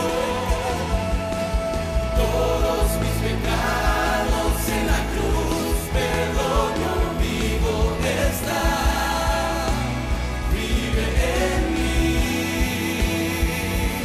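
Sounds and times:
live band playing worship music: 0.0s - 14.0s
man singing into microphone: 2.1s - 14.0s.

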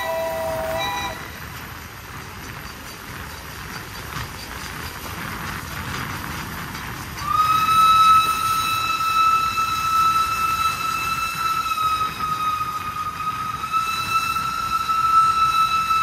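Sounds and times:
steam locomotive whistle: 0.0s - 1.5s, 7.2s - 16.0s
moving train rolling noise: 0.0s - 16.0s.

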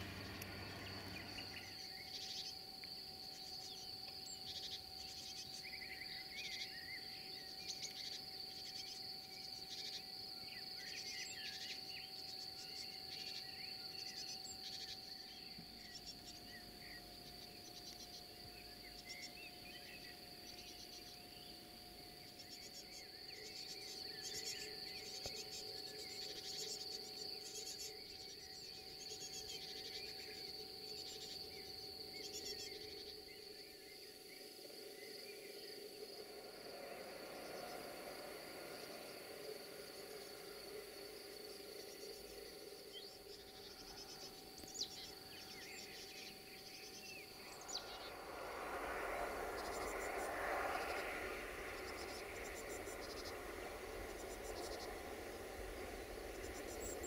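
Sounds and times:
birds chirping: 0.0s - 21.6s, 41.6s - 57.0s
high-pitched insect trill: 0.0s - 57.0s.

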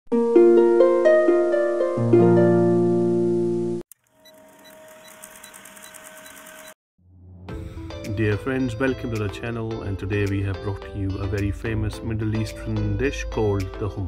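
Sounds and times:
plucked string music: 0.2s - 3.8s.

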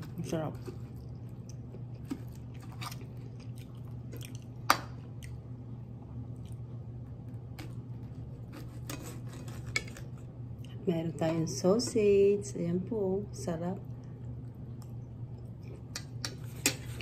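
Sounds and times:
steady low hum: 0.0s - 17.0s
person chewing food: 0.6s - 10.8s, 14.2s - 17.0s
cutlery scraping a ceramic plate: 8.5s - 10.1s, 16.2s - 17.0s.

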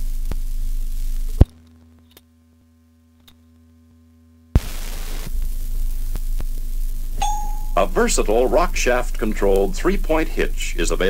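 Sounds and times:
low hum: 2.4s - 11.0s
record surface noise: 4.6s - 11.0s.

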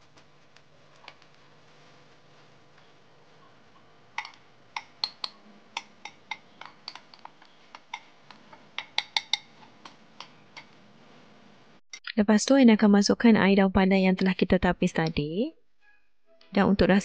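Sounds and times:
metal spoon clicking against bowl: 8.8s - 9.5s.

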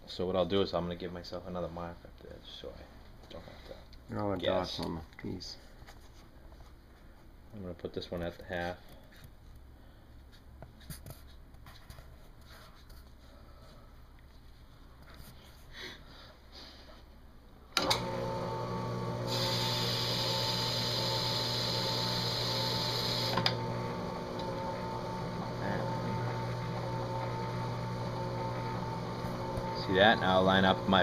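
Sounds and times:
machine motor humming: 17.8s - 31.0s
hiss: 19.3s - 23.3s.

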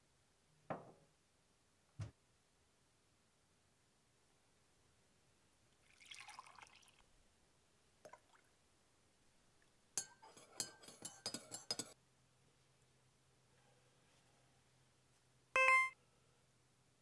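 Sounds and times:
liquid pouring into mug: 5.8s - 7.0s
spoon clinking in mug: 10.0s - 12.0s.

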